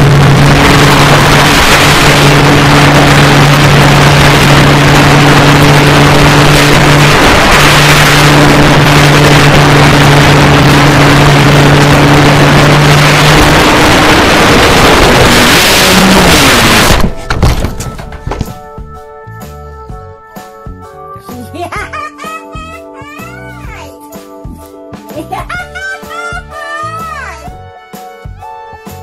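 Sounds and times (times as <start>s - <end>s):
wind rushing over camera: 0.0s - 17.2s
electric motor and propeller hum: 0.0s - 18.8s.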